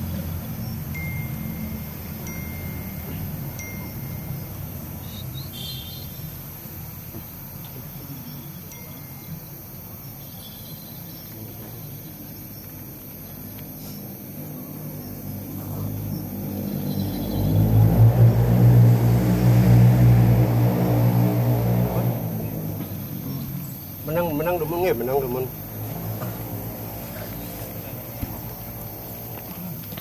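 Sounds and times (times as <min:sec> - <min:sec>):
small bell ringing: 0:00.9 - 0:05.0, 0:08.6 - 0:09.7.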